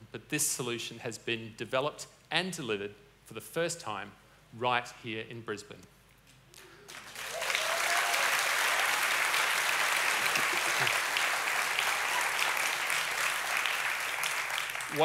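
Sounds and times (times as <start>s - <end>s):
audience applauding: 6.9s - 15.0s.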